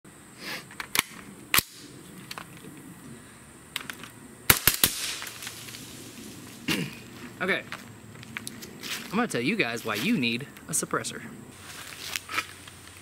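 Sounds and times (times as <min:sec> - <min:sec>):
suppressed gunshots: 0:04.5 - 0:05.5.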